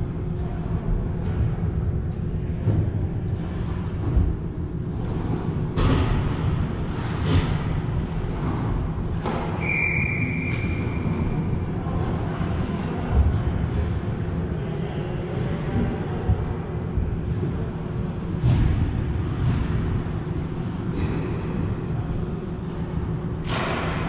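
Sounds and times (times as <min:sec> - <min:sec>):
low rumble of ice rink: 0:00.0 - 0:24.0
referee's whistle blast: 0:09.6 - 0:10.8.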